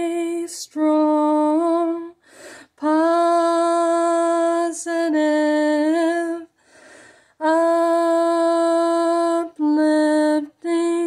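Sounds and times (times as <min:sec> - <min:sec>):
woman singing unaccompanied: 0:00.0 - 0:06.6, 0:07.4 - 0:11.0
woman breathing: 0:02.2 - 0:02.8, 0:06.5 - 0:07.4.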